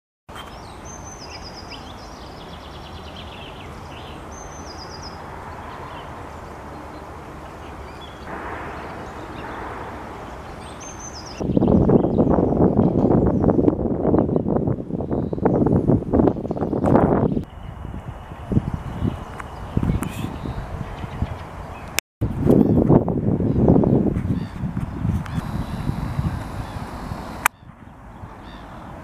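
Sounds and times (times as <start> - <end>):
starlings chattering and whistling: 0.3 - 13.6, 25.3 - 28.9
steady background noise: 0.4 - 11.5, 25.2 - 29.0
loud rush of wind noise: 5.1 - 29.0.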